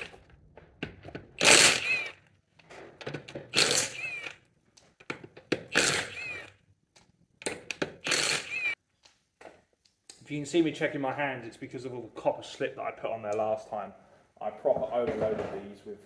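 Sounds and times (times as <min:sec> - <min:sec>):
impact wrench whining: 0:01.0 - 0:02.3, 0:03.0 - 0:04.5, 0:05.5 - 0:06.6, 0:07.5 - 0:08.8.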